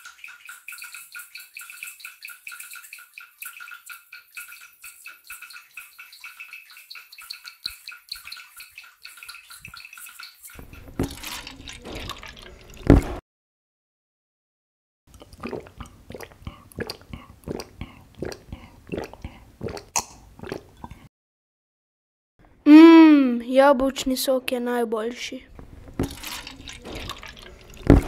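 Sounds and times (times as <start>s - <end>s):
gurgling through a straw: 0.0s - 13.2s, 15.1s - 21.1s, 25.6s - 28.0s
juice pouring into plastic cup: 9.1s - 13.1s, 25.6s - 28.0s.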